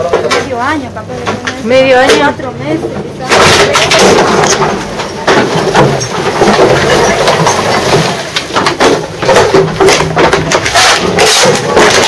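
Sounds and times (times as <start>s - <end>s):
junk clattering and rustling: 0.0s - 12.0s.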